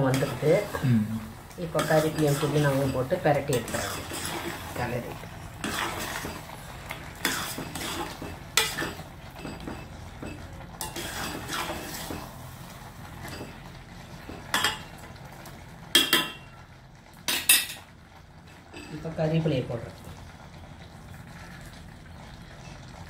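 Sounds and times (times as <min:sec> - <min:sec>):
metal spoon scraping a pot: 0:01.7 - 0:04.8, 0:05.6 - 0:06.5, 0:07.2 - 0:09.8, 0:10.8 - 0:12.2.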